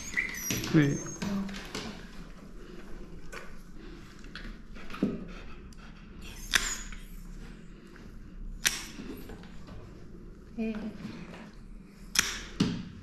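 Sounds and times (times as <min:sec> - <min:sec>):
nail clippers snipping toenails: 0:06.4 - 0:07.0, 0:08.6 - 0:09.0, 0:12.2 - 0:12.6.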